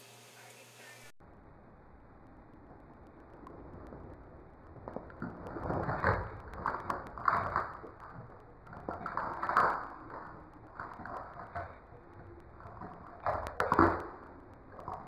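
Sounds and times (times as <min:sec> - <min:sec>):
lizard crunching crickets: 0:04.7 - 0:15.0.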